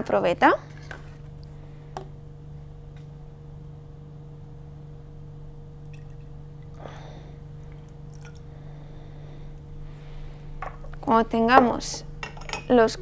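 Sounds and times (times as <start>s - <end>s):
steady low hum: 0.0s - 13.0s
water trickling into cylinder: 5.8s - 6.8s, 7.6s - 8.6s.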